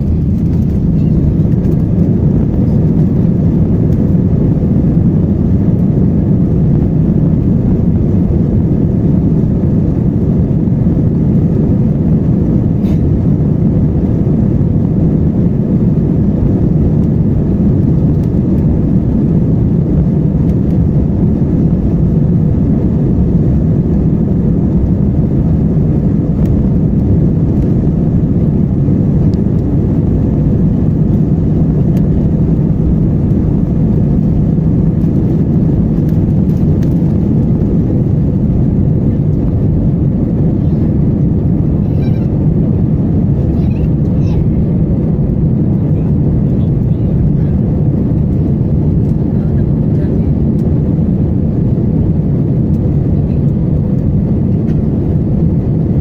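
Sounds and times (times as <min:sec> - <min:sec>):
jet engines and wheels rumbling: 0:00.0 - 0:56.0.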